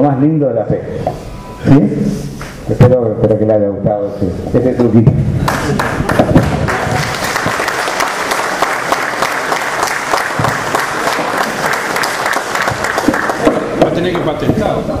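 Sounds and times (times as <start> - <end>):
audience applauding: 5.4 - 14.1.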